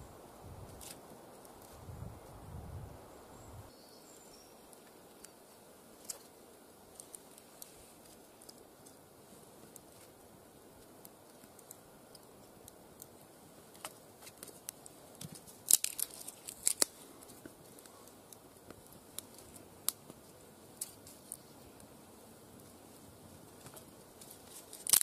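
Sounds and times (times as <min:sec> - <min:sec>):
kindling sticks splitting: 0:00.7 - 0:01.7, 0:10.8 - 0:21.5, 0:23.5 - 0:25.0
small woody clicks: 0:06.9 - 0:09.0, 0:10.8 - 0:20.2
sharp wood cracks: 0:10.8 - 0:20.2, 0:23.6 - 0:25.0.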